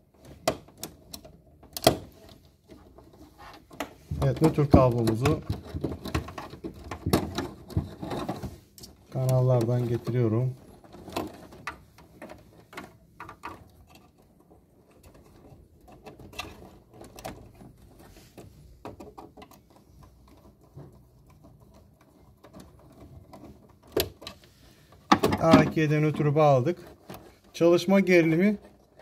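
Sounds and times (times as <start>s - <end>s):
wire rustling in plastic cable ducts: 0.0s - 29.0s.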